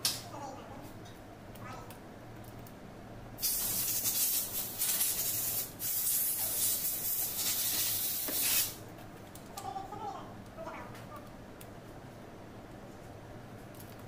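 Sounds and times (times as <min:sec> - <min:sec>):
aerosol spray hissing: 0:03.4 - 0:08.8.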